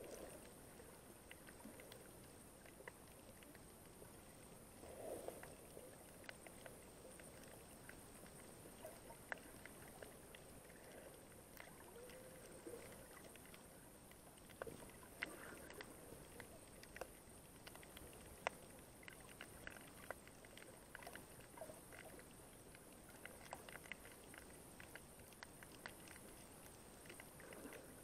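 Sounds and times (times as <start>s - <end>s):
muffled underwater water swishes: 0.0s - 28.0s
small clicks underwater: 0.0s - 28.0s.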